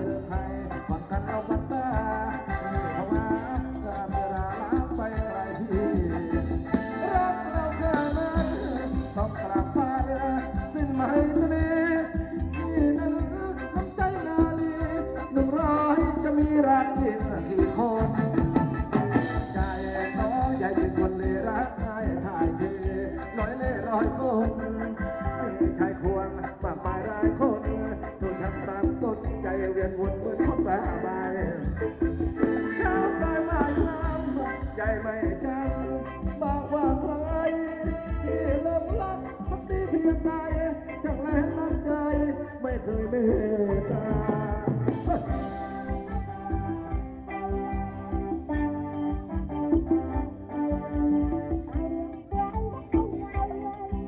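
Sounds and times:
steady drum beat: 0.0 - 24.5, 25.2 - 42.3
keyboard: 0.0 - 54.0
person singing: 0.0 - 54.0
wavering vocal line: 0.0 - 54.0.

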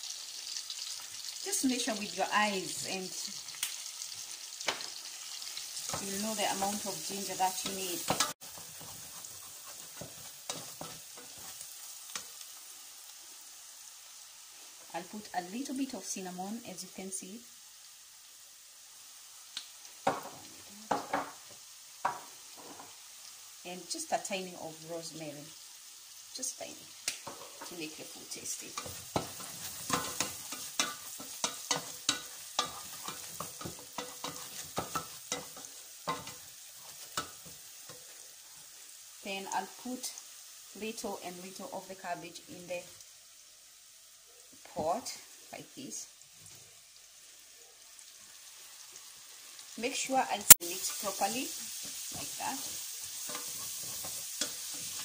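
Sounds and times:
onion sizzling in oil: 0.0 - 55.0
spatula scraping pot: 5.8 - 12.2, 28.7 - 38.2.

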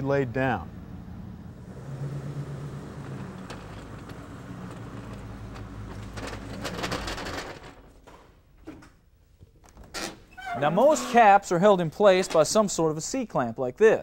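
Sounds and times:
metal tool cart clattering: 2.9 - 8.2.

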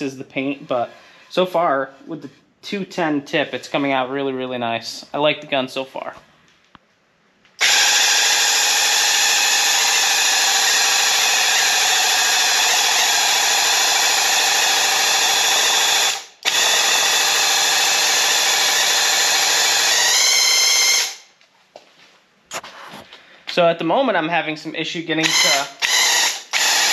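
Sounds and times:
sprayer pump motor whining: 7.6 - 21.2.

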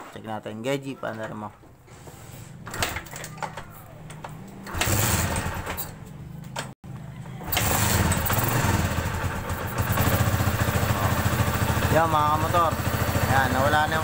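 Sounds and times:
motorcycle engine running: 6.9 - 14.0.

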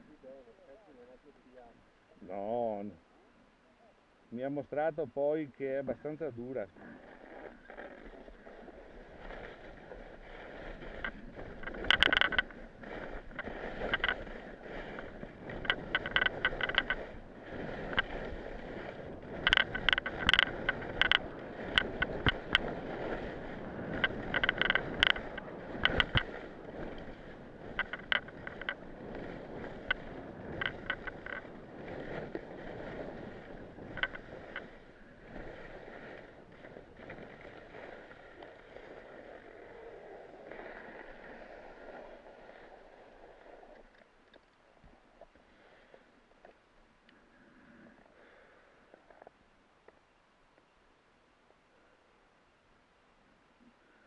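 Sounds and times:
skis scraping over snow: 5.8 - 43.9
skis clattering over bumps: 7.0 - 43.7.

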